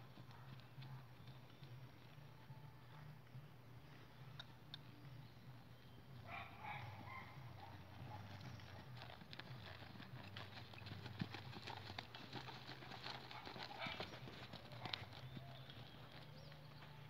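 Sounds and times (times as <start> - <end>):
horse hoofbeats on sand: 5.5 - 17.0.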